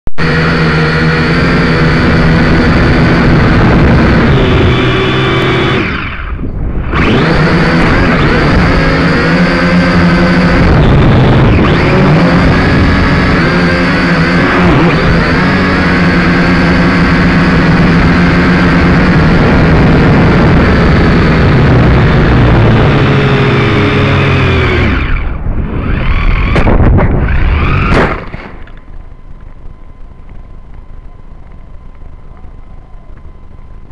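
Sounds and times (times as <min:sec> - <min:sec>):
drone propellers buzzing: 0:00.1 - 0:33.9
thin steady whine: 0:00.1 - 0:33.9
drone crashing into vegetation: 0:24.9 - 0:29.7.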